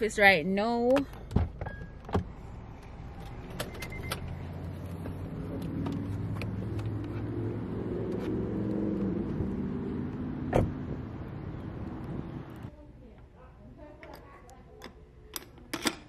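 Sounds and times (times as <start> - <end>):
car engine running: 2.6 - 12.4.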